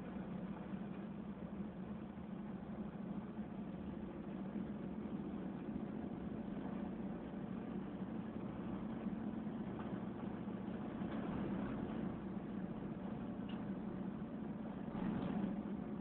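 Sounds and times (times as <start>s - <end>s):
diesel engine running: 0.0s - 16.0s
tyre noise on rough road: 14.7s - 16.0s.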